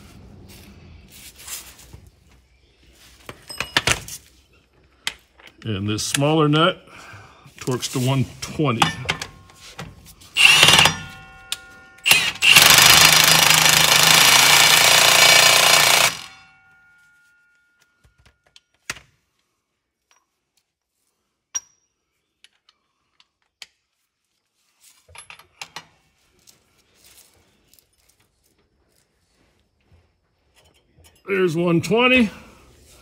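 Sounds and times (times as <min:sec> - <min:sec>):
impact wrench hammering: 0:08.7 - 0:09.8, 0:10.4 - 0:16.7.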